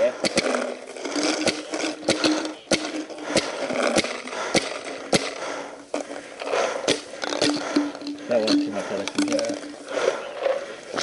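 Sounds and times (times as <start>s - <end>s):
paintball marker shots: 0.2s - 5.7s.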